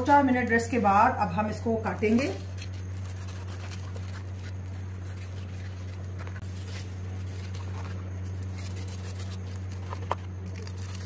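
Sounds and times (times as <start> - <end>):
steady low hum: 0.0 - 11.0
knife crunching through fried food: 2.1 - 11.0.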